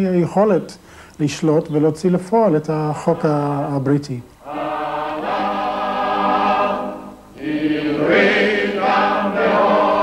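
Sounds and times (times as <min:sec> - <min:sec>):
choir singing long held notes: 0:03.0 - 0:10.0.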